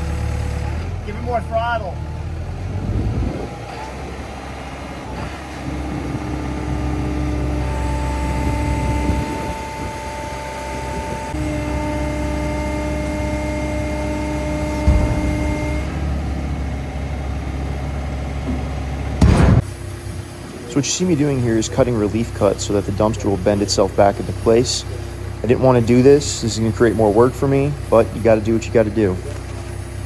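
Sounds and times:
excavator diesel engine running: 0:00.0 - 0:30.0
hydraulic whine: 0:02.1 - 0:30.0
sharp metal clunk: 0:14.8 - 0:15.9.

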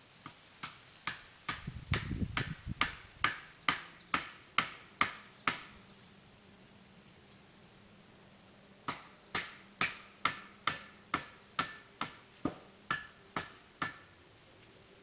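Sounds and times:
hammer striking metal: 0:08.9 - 0:12.2, 0:12.9 - 0:14.0.

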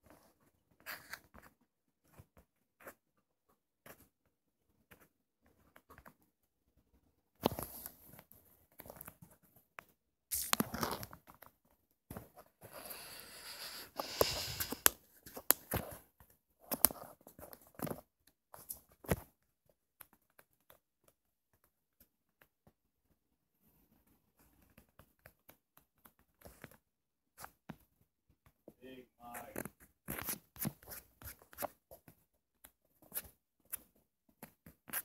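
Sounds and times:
rustling and crinkling: 0:00.0 - 0:35.0.

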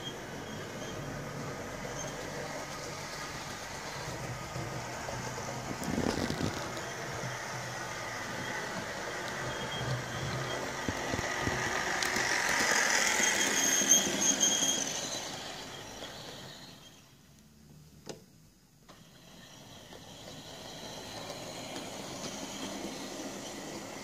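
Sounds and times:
model train motor whine and rumble: 0:00.1 - 0:17.1, 0:18.9 - 0:24.0
wheels clicking over rail joints: 0:01.7 - 0:16.6.

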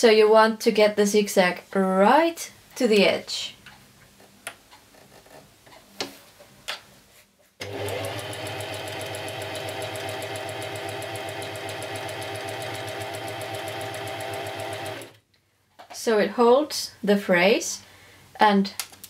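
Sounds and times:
sewing machine running: 0:07.6 - 0:15.2.

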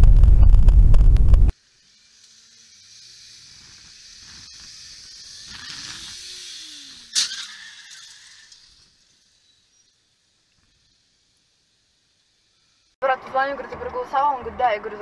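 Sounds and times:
loud low rumble: 0:00.0 - 0:01.5.

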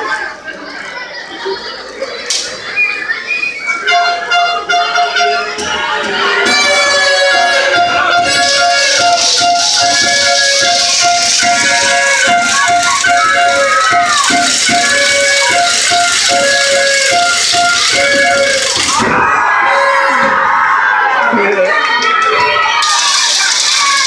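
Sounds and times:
loud music with shaker rhythm: 0:06.4 - 0:19.4, 0:22.8 - 0:24.0.

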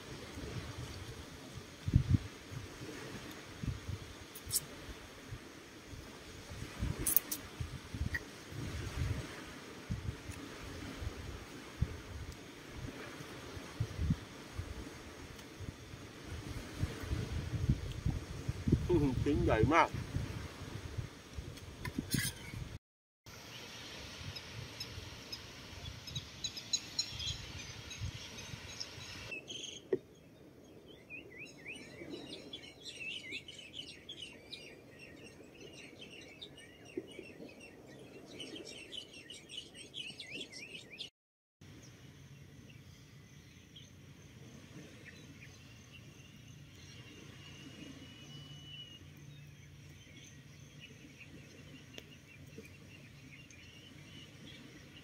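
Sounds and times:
small birds chirping: 0:23.6 - 0:41.1, 0:41.8 - 0:55.0.

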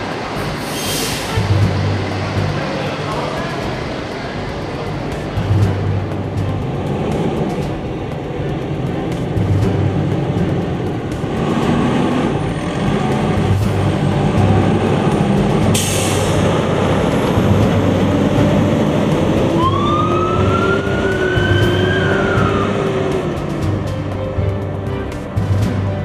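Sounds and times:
diesel truck engines running: 0:00.0 - 0:26.0
air brake hiss: 0:00.4 - 0:01.4, 0:15.8 - 0:16.4
siren rising in pitch: 0:18.8 - 0:23.4.

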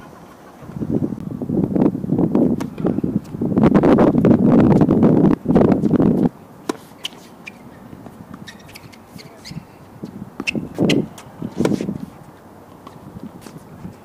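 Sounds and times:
wind on microphone: 0:00.0 - 0:06.4, 0:07.6 - 0:12.4, 0:13.0 - 0:14.0
tennis ball bouncing: 0:05.4 - 0:14.0
racket striking tennis ball: 0:06.6 - 0:13.7.

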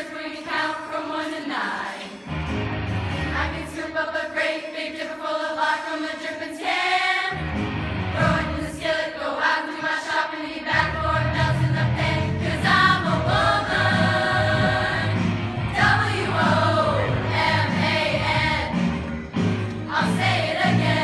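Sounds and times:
girls' choir singing: 0:00.0 - 0:02.3, 0:03.3 - 0:07.4, 0:08.2 - 0:19.0, 0:19.6 - 0:21.0
low bass part: 0:02.3 - 0:03.4, 0:07.4 - 0:08.5
instrumental backing: 0:02.3 - 0:03.6.

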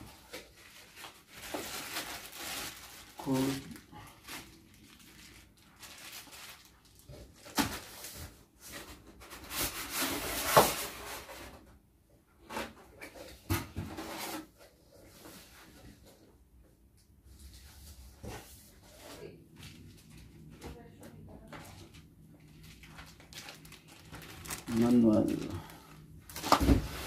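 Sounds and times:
cardboard rustling scrape: 0:07.6 - 0:11.6, 0:12.4 - 0:16.2.

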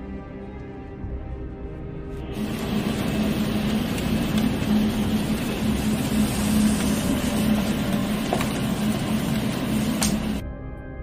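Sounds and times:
steady low hum: 0:02.0 - 0:10.4
heavy rain rushing: 0:02.3 - 0:10.4.

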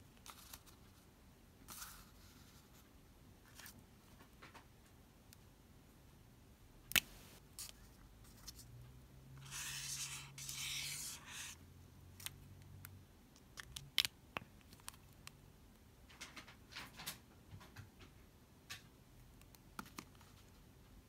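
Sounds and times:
highlighter scratching on paper: 0:09.4 - 0:11.6.

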